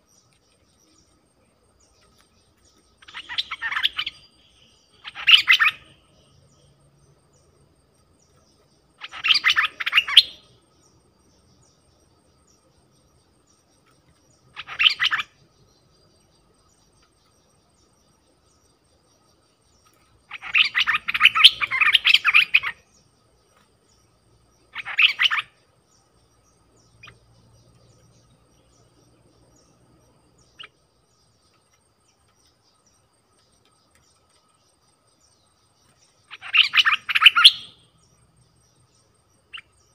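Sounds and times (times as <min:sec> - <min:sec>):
faint bird chirps: 0:00.0 - 0:39.9
bulbul singing rapid phrases: 0:36.3 - 0:37.8.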